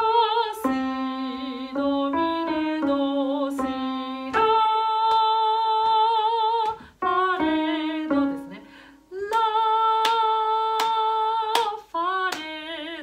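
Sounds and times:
soprano voice singing: 0.0 - 13.0
sharp hand claps: 10.8 - 12.5.

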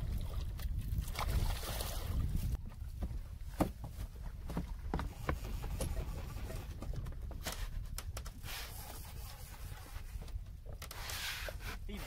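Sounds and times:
low wind rumble: 0.0 - 12.0.

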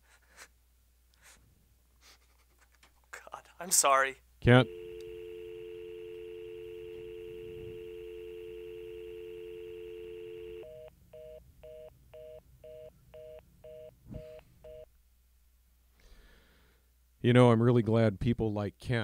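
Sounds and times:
telephone dial tone: 4.6 - 12.4
busy signal beeps: 4.6 - 14.9.

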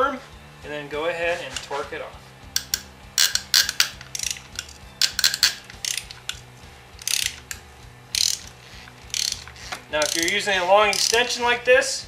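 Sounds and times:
ratchet wrench clicking: 2.5 - 11.4.

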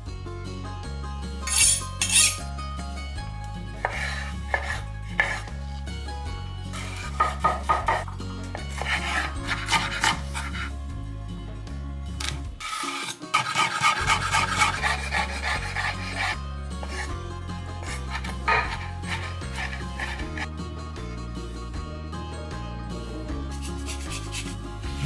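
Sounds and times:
background music with steady beat: 0.0 - 25.0
knife chopping on cutting board: 3.8 - 5.5, 6.8 - 10.7, 13.3 - 16.2, 17.8 - 20.5.

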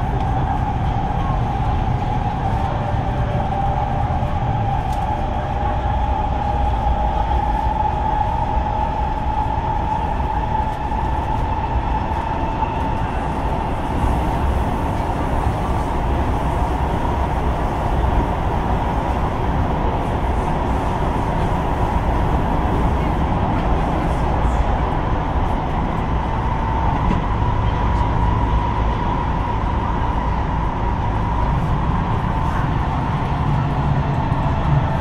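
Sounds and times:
train high whine: 0.0 - 35.0
train wheels rumbling on rail: 0.0 - 35.0.

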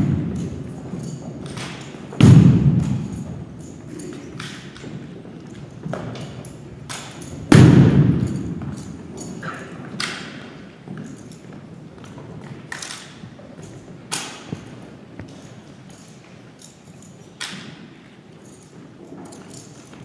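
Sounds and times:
rifle slaps and thuds echoing: 1.6 - 3.3, 6.9 - 8.9.

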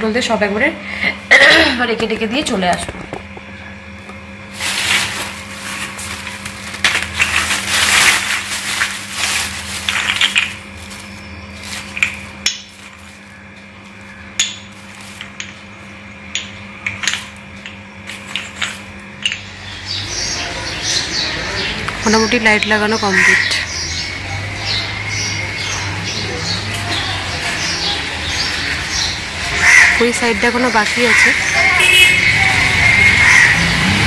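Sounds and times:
plastic bag crackling: 4.5 - 13.4, 14.7 - 15.4
clay lamps clinking: 5.3 - 13.2, 14.0 - 19.8.

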